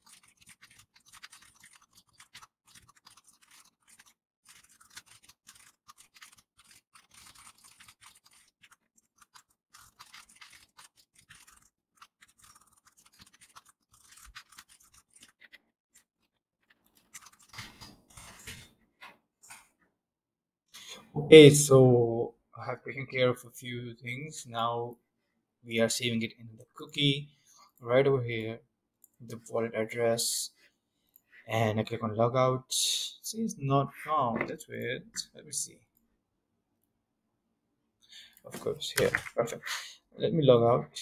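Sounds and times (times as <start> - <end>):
fast keyboard typing clatter: 0.0 - 15.5, 17.0 - 18.6.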